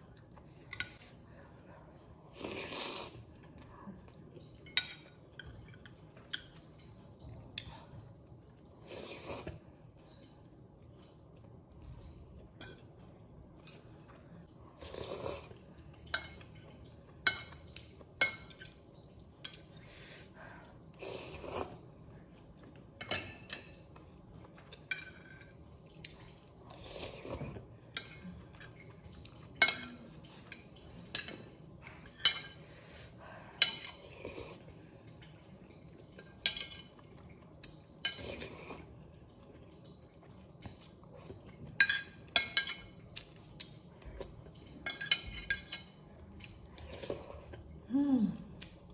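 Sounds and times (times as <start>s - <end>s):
slurping noodles: 2.4s - 3.3s
cutlery clinking on ceramic plate: 44.8s - 46.0s.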